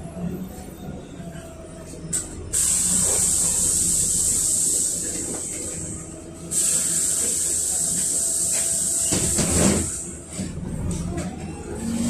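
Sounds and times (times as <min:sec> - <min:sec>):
bus engine rumble: 0:00.0 - 0:12.0
loud steady hiss: 0:02.6 - 0:05.8, 0:06.5 - 0:10.0.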